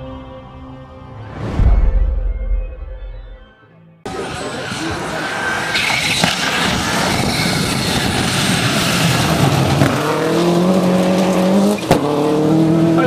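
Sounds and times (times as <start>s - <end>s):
rally car engine at high revs: 4.1s - 13.0s
gravel noise from tyres: 4.3s - 13.0s.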